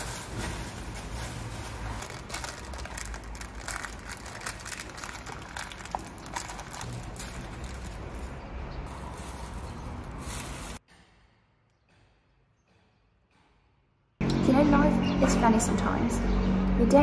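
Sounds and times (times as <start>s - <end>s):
plastic wrapper crinkling: 0.0s - 10.8s.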